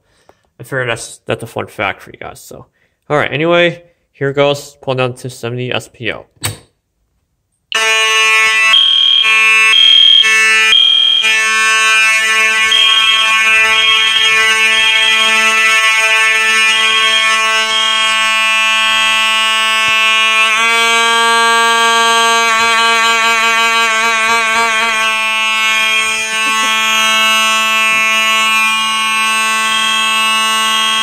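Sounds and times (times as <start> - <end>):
buzzing fire alarm horn: 7.7 - 31.0
pulsing alarm horn beeps: 7.7 - 31.0.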